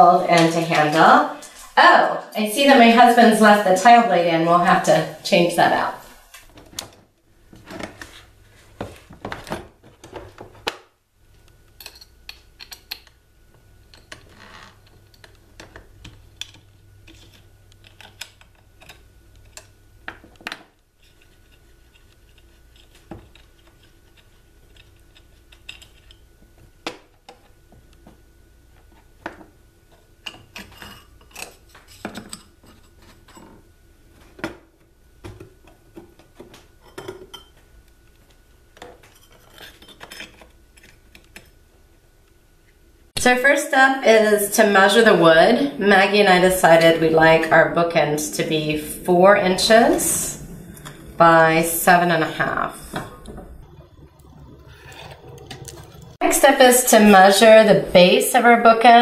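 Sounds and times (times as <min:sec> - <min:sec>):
faint steady hum: 0:00.0 - 0:59.0.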